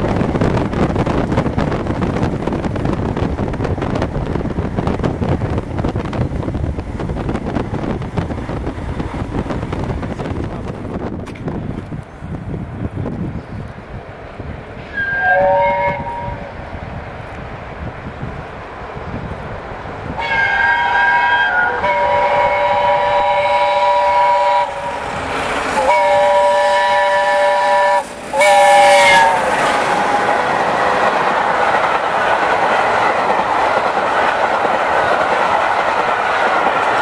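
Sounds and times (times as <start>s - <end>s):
train wheels clattering over rails: 0.0s - 12.1s, 21.9s - 37.0s
steam locomotive whistle blasts: 14.9s - 16.5s, 20.2s - 25.0s, 25.8s - 30.4s.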